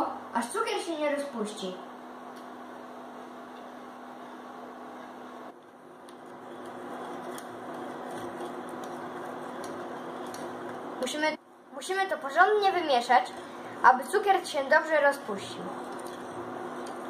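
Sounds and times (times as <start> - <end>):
steady hum: 0.0 - 17.0
whisk stirring in saucepan: 5.6 - 11.0, 15.6 - 17.0.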